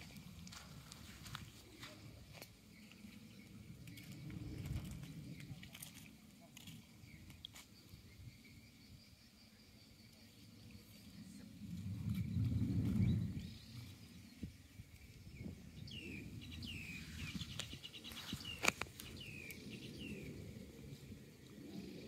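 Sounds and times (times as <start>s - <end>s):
small birds chirping: 0.0s - 20.4s
low rumble: 11.2s - 14.4s.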